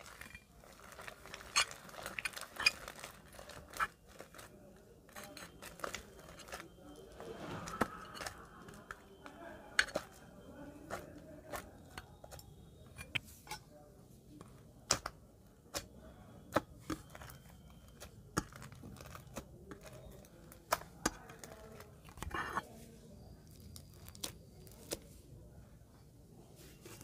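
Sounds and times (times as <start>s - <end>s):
crunchy slime crackling: 0.0s - 12.5s, 15.7s - 22.6s, 23.3s - 25.2s.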